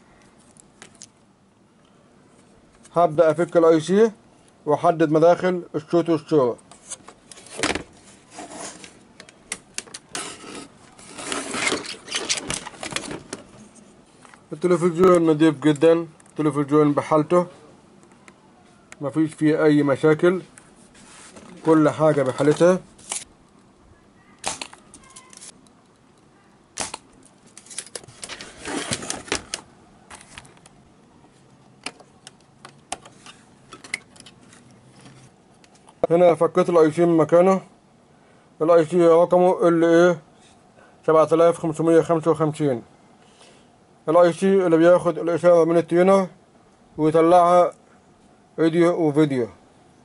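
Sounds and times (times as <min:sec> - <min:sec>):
hand rubbing over microphone: 0:20.3 - 0:22.0.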